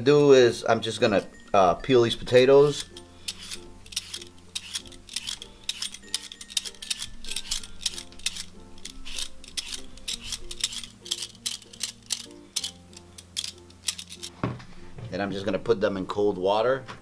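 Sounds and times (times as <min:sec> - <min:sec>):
background music with low notes: 0:00.0 - 0:17.0
peeler scraping potato skin: 0:02.7 - 0:14.3.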